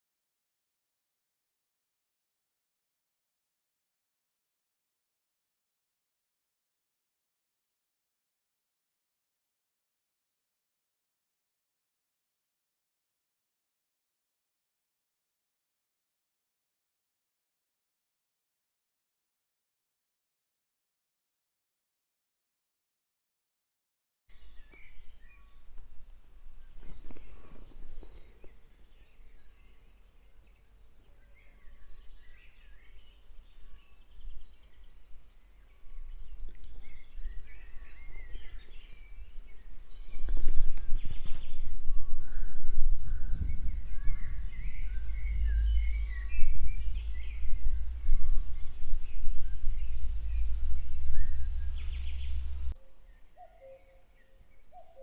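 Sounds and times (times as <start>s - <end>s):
wind rumble on microphone: 24.3s - 52.8s
songbirds chirping and singing: 24.3s - 55.0s.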